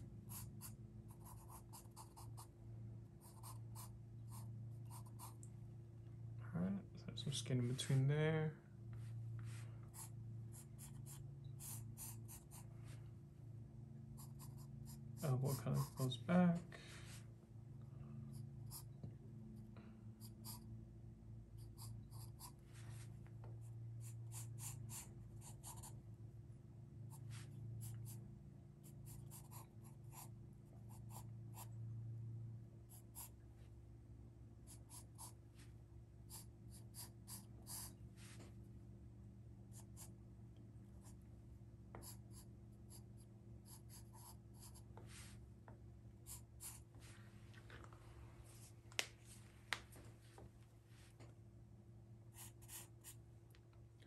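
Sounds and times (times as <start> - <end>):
low steady hum: 0.0 - 54.0
pencil scratching on paper: 0.3 - 2.5, 3.2 - 5.4, 9.9 - 12.7, 14.2 - 16.2, 20.2 - 20.6, 21.6 - 23.1, 24.0 - 26.0, 28.8 - 30.3, 36.3 - 38.0, 42.0 - 45.3, 46.3 - 46.9, 52.4 - 53.2.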